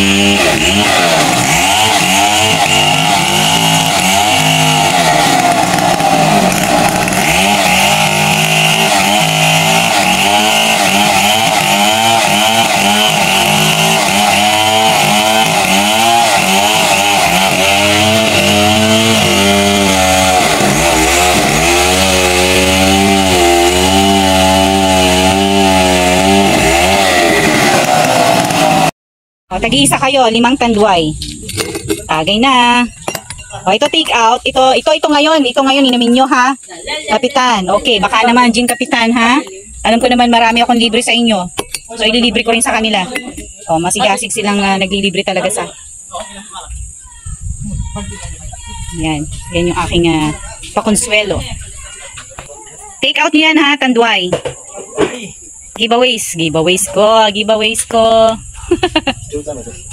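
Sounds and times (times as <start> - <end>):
chainsaw cutting through log: 0.0 - 28.9.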